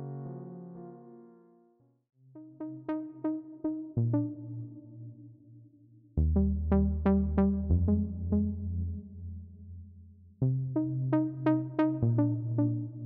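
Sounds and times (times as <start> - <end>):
synthesizer plucked notes: 6.2 - 9.0, 10.6 - 13.0
low synth bass notes: 6.2 - 9.7, 10.4 - 13.0.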